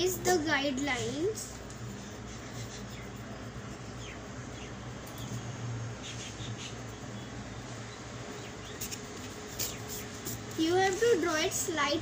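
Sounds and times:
steady low hum: 0:00.0 - 0:12.0
pencil scratching on paper: 0:00.1 - 0:04.0, 0:08.8 - 0:11.6.

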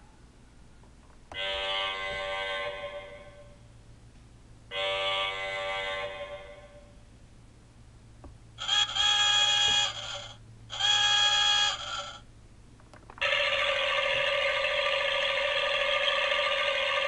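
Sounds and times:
toy whirring: 0:08.6 - 0:12.2.

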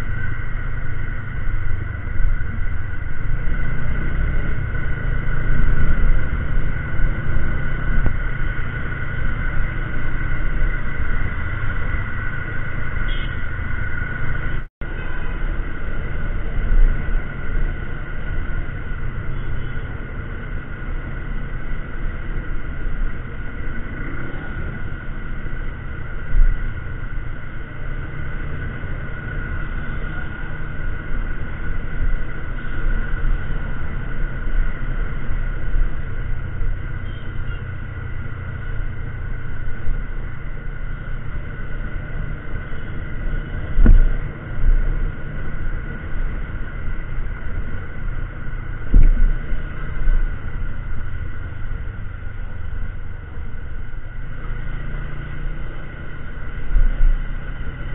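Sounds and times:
wind noise: 0:00.0 - 0:19.5, 0:20.2 - 0:55.2
short thumps: 0:43.6 - 0:44.8.

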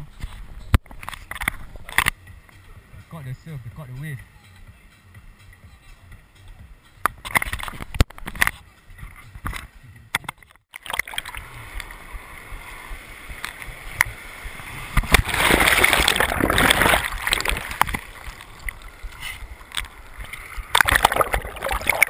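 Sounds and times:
surf lapping and gurgling: 0:10.7 - 0:22.0.

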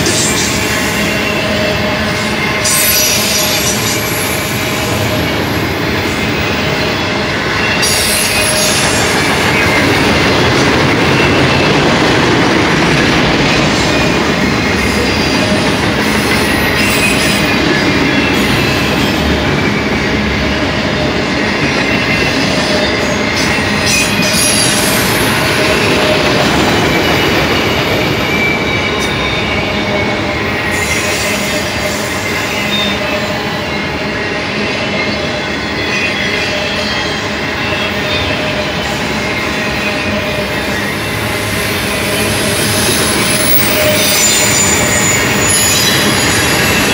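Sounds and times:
steel wheels rumbling on rail: 0:00.0 - 0:46.9
high wheel squeals: 0:21.8 - 0:46.9.

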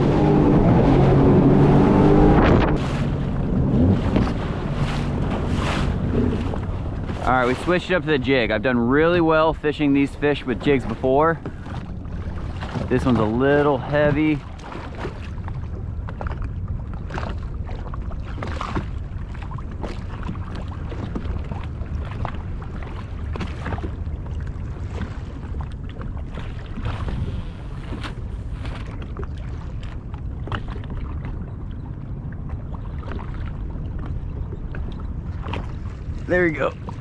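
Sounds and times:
steady low rumble: 0:00.0 - 0:14.5
small waves slapping hull: 0:00.0 - 0:37.0
wind buffeting microphone: 0:00.0 - 0:37.0.

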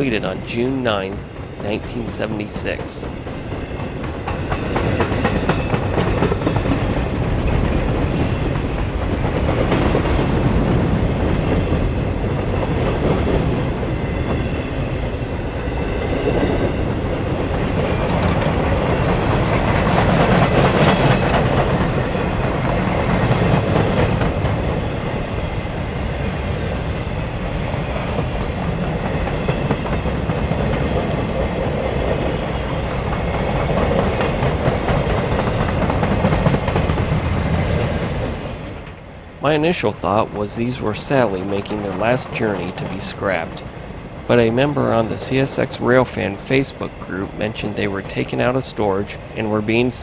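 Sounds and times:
wheels clacking over rail joints: 0:00.0 - 0:25.6, 0:26.2 - 0:39.0
freight train rumble: 0:00.0 - 0:50.0.

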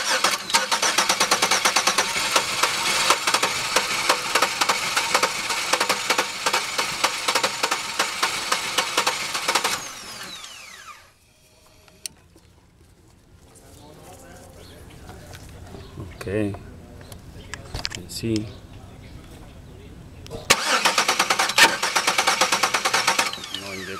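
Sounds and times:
car engine cranking on starter: 0:00.0 - 0:11.0, 0:20.5 - 0:23.9.

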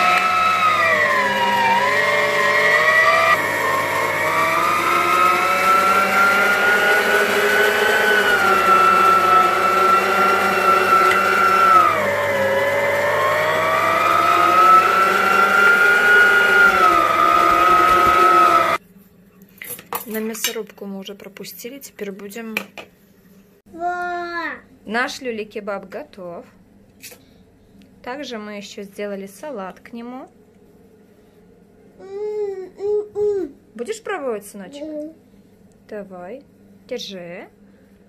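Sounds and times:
electric meat grinder whining: 0:00.0 - 0:18.8.

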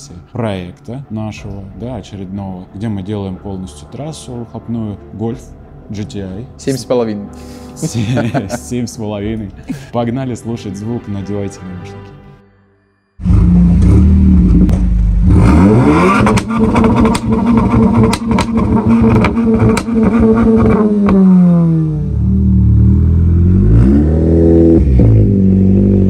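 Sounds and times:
car engine revving: 0:13.2 - 0:26.0
exhaust cracks: 0:13.2 - 0:26.0.

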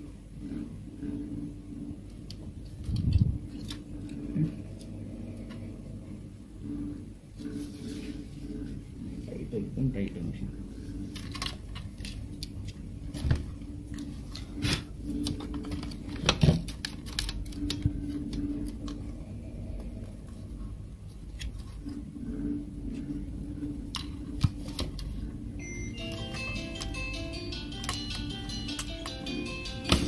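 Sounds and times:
low hum: 0:00.0 - 0:30.0
short melody: 0:25.6 - 0:30.0.

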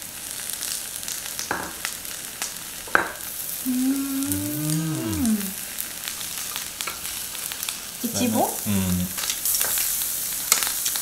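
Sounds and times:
meat sizzling on a grill: 0:00.0 - 0:11.0
lower hum: 0:03.6 - 0:05.6
person humming: 0:03.6 - 0:05.6, 0:08.1 - 0:09.2.

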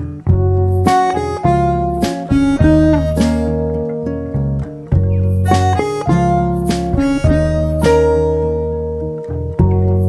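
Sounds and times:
acoustic guitar: 0:00.0 - 0:10.0
harmonica held notes: 0:00.7 - 0:04.3, 0:05.3 - 0:08.8.

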